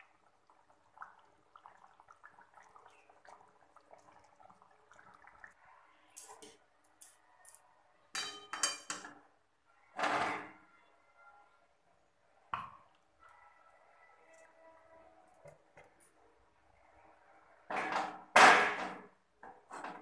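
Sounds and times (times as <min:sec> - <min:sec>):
curry bubbling and popping: 0:00.0 - 0:07.2
metal cookware clinks: 0:08.1 - 0:09.2.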